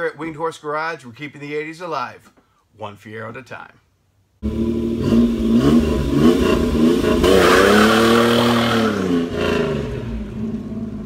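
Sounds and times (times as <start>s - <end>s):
car engine revving: 4.4s - 11.0s.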